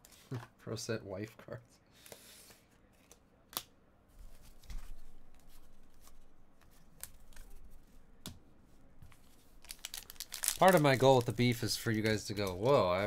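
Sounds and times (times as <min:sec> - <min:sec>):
trading cards rustling: 0:09.1 - 0:13.0.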